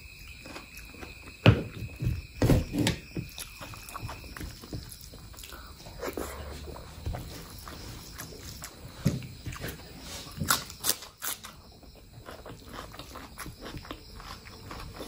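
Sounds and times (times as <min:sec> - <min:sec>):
close chewing and mouth sounds: 0:00.0 - 0:02.3, 0:03.1 - 0:15.0.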